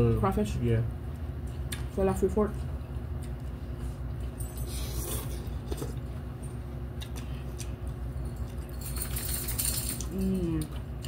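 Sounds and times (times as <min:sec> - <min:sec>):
steady low hum: 0:00.0 - 0:11.0
chewing and mouth smacking: 0:06.9 - 0:09.2.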